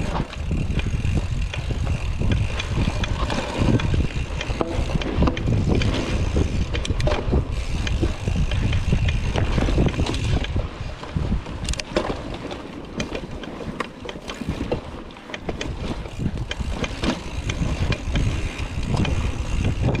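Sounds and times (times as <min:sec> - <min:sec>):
bike chain and frame rattling: 0:00.0 - 0:20.0
tyres rumbling on dirt trail: 0:00.0 - 0:20.0.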